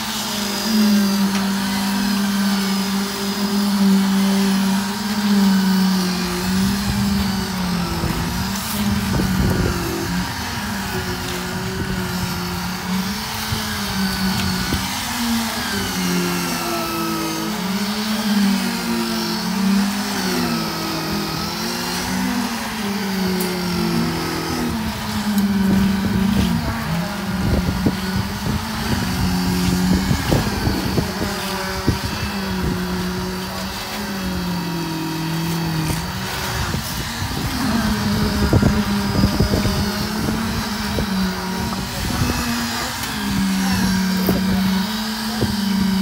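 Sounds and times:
concrete vibrator motor hum: 0:00.0 - 0:46.0.

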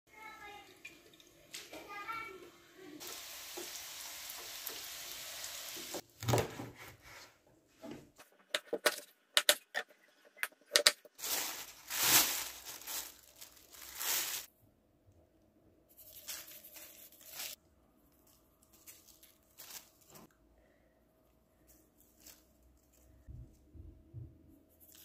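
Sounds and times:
plastic bag rustling: 0:11.0 - 0:14.5, 0:15.9 - 0:20.3, 0:21.7 - 0:23.3.

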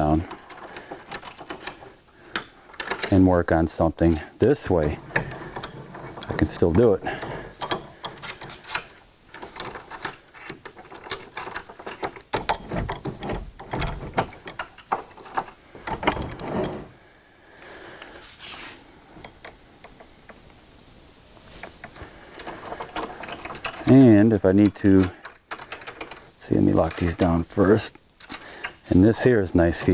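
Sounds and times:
bench vise metal clicks and rattles: 0:00.0 - 0:03.2, 0:04.4 - 0:16.8, 0:21.6 - 0:26.2.

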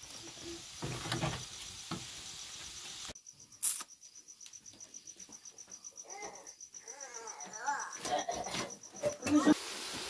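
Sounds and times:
hiss: 0:00.0 - 0:03.9, 0:09.3 - 0:10.0
cricket chirping: 0:00.1 - 0:09.6.

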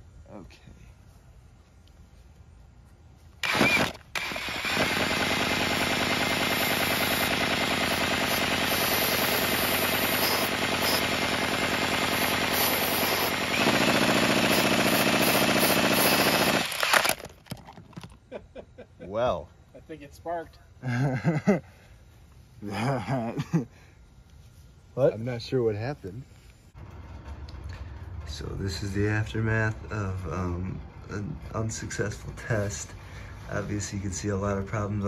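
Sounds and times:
engine mechanical rattle: 0:26.8 - 0:29.4.

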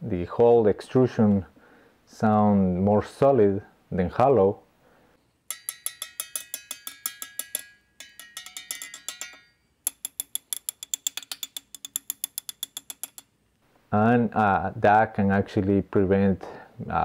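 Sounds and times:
metal bar tapping on aluminium: 0:05.5 - 0:13.3.

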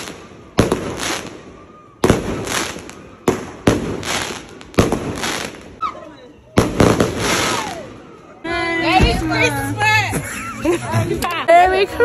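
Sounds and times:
fireworks bangs: 0:00.0 - 0:08.3
fireworks crackle: 0:00.0 - 0:08.4.

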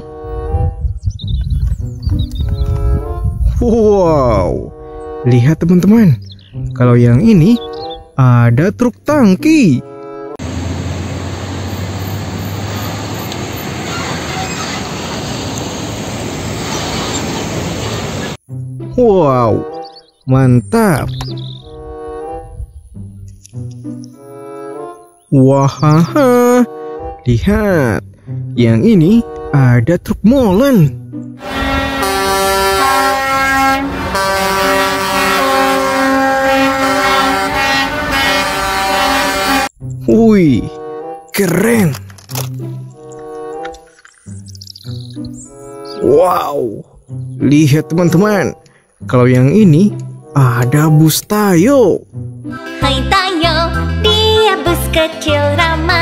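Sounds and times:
truck air horns blasting: 0:00.0 - 0:00.9, 0:04.6 - 0:05.5, 0:31.4 - 0:39.8
road and tyre noise: 0:09.8 - 0:18.5, 0:30.5 - 0:46.2, 0:47.4 - 0:51.1
truck diesel engine driving past: 0:10.4 - 0:18.4, 0:31.4 - 0:39.7.

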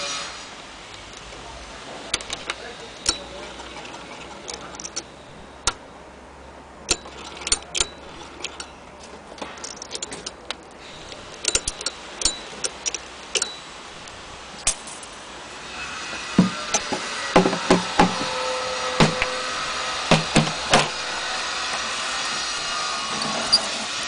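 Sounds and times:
sewing machine clicking: 0:06.9 - 0:08.7.

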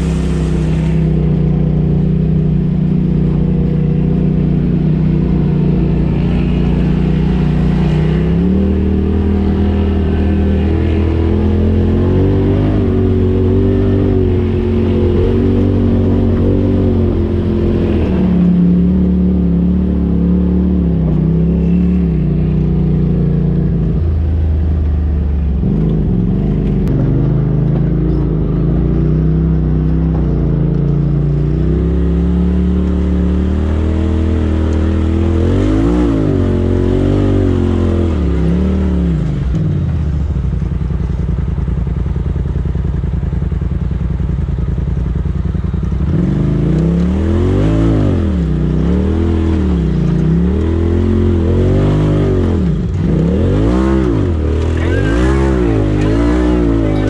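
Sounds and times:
vehicle engine revving: 0:00.0 - 0:41.4, 0:42.3 - 0:57.0.

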